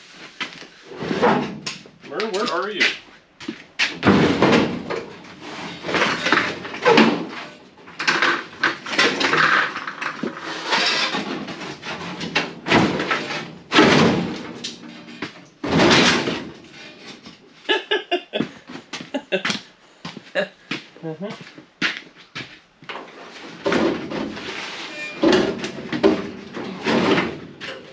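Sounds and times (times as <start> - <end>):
metal scraping and clanking: 4.0 - 17.3, 23.0 - 27.9.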